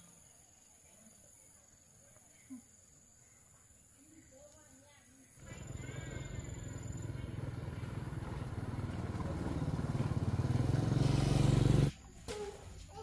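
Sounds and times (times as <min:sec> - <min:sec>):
small engine humming: 0:05.4 - 0:11.9.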